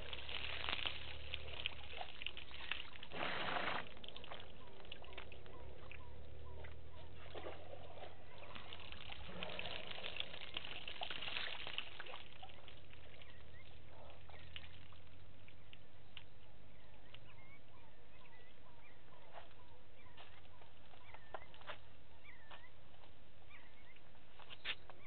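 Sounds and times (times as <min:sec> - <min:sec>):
elephant drinking water splashing: 0:00.0 - 0:05.9, 0:06.7 - 0:15.6.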